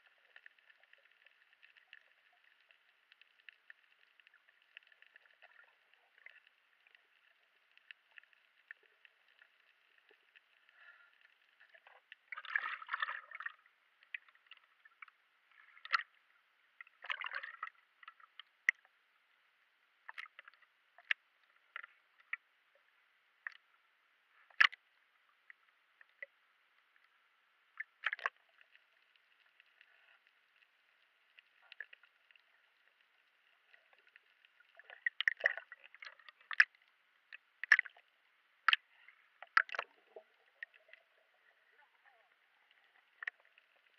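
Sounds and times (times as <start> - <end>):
muffled water sloshing: 0.0 - 18.7, 27.7 - 43.9.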